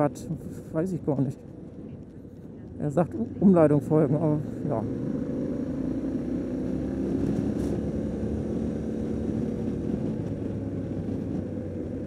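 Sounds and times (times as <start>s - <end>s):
motorcycle engine running: 3.0s - 12.0s.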